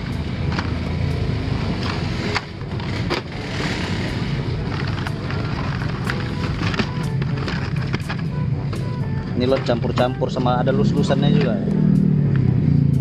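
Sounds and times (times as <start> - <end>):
plastic packs clicking and rustling: 4.7 - 8.3.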